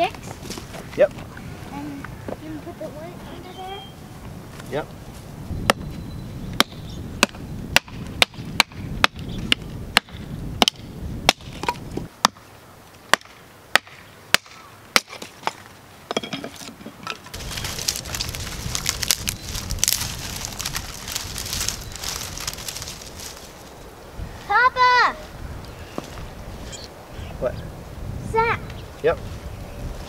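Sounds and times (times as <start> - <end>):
dry grass and sticks rustling: 0.0 - 27.0
hatchet chopping tree stump: 6.6 - 12.4, 13.1 - 16.7.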